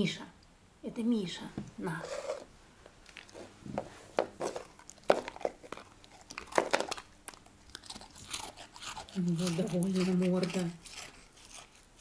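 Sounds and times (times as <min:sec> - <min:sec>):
dog crunching a hard biscuit: 0:04.3 - 0:12.0.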